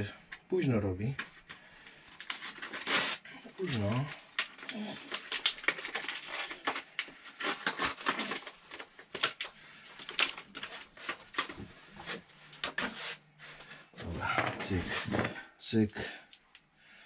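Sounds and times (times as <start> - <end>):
paper rustling: 2.2 - 15.3.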